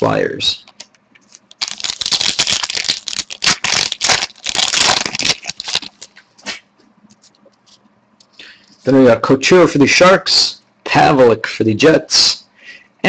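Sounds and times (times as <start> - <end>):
foil wrapper crinkling and tearing: 1.3 - 6.2.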